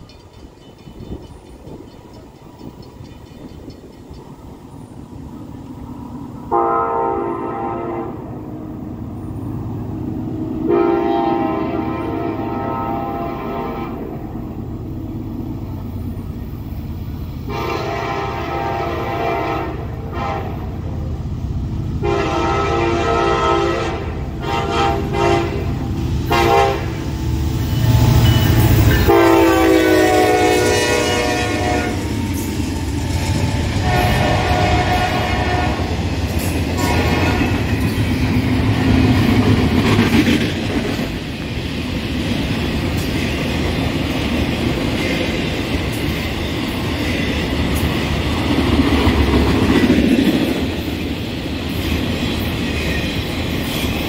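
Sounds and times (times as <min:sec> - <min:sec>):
train wheels clattering on rail: 0:00.0 - 0:05.8, 0:24.2 - 0:54.0
locomotive engine rumble: 0:00.0 - 0:52.6
train horn blasts: 0:06.5 - 0:08.5, 0:10.4 - 0:14.4, 0:17.4 - 0:21.0, 0:22.0 - 0:27.1, 0:27.8 - 0:32.1, 0:33.8 - 0:36.0, 0:36.7 - 0:37.8.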